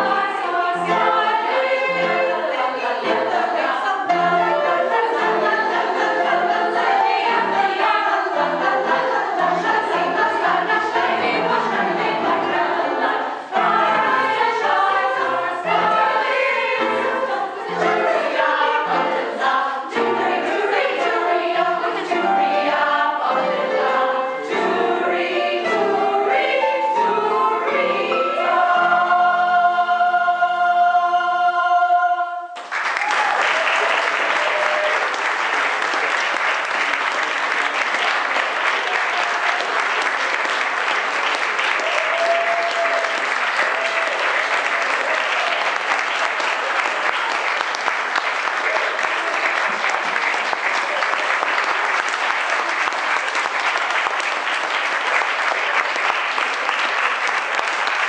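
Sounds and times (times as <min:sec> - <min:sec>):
choir singing: 0:00.0 - 0:32.6, 0:33.9 - 0:58.0.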